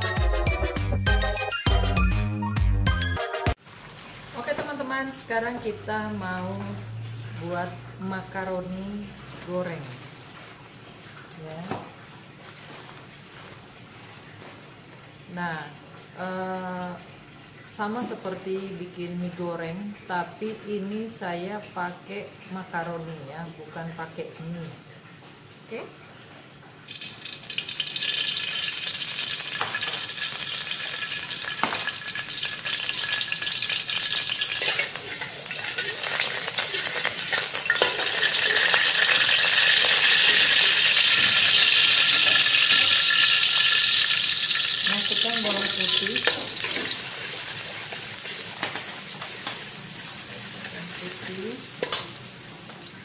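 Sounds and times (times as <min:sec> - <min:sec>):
oil sizzling in a wok: 0:03.5 - 0:19.4, 0:26.8 - 0:53.0.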